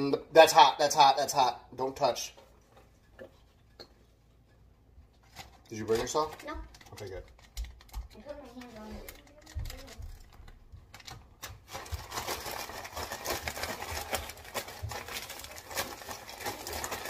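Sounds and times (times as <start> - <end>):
plastic bag crinkling: 5.2 - 17.0.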